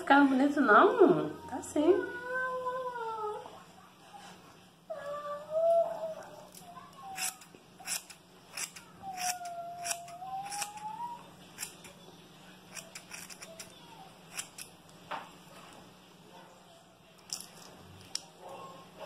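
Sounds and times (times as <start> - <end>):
scissors snipping hair: 6.5 - 10.9, 11.6 - 12.0, 12.7 - 14.7.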